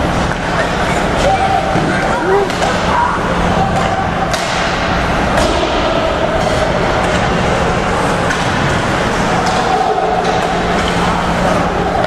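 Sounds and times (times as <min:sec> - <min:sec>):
hockey sticks and puck cracking: 0:03.7 - 0:12.0.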